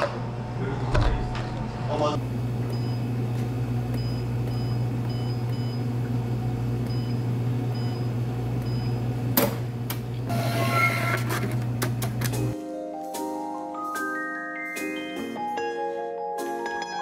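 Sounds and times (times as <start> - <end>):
low electrical hum: 0.0 - 12.6.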